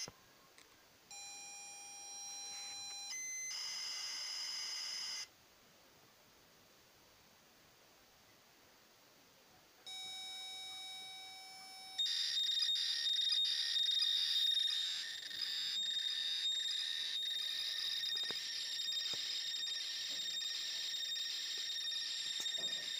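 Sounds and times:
computer tape-loading pilot tone: 9.9s - 22.9s
buzzing warble of data loading: 12.1s - 22.9s.

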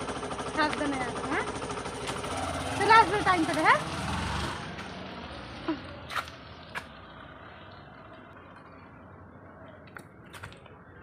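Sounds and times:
faint traffic noise: 2.3s - 11.0s.

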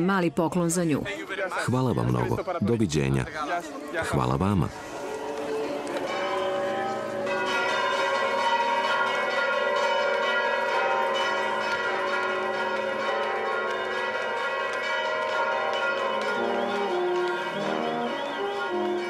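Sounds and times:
church bells pealing: 4.3s - 19.0s.

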